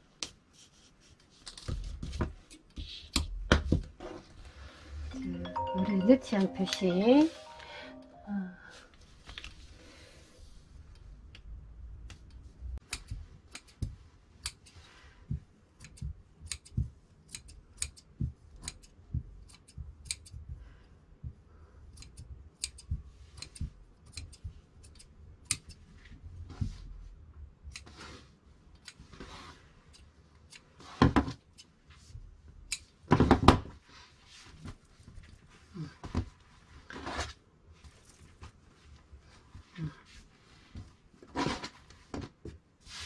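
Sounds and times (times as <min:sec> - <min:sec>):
shears snipping thread: 0:12.1 - 0:14.8, 0:15.7 - 0:20.5, 0:21.9 - 0:25.9.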